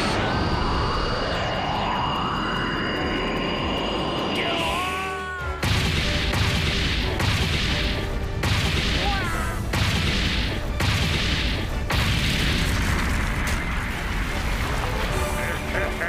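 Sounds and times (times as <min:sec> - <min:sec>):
cartoon booms and crashes: 0:05.6 - 0:14.1.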